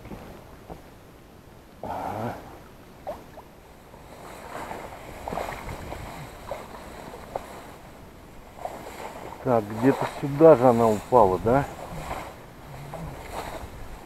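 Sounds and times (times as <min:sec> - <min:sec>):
reeds rustling against boat: 0:03.0 - 0:14.0.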